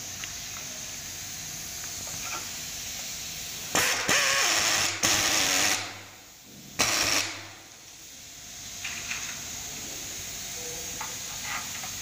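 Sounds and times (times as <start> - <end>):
cordless drill bursts: 3.7 - 6.0, 6.8 - 7.6.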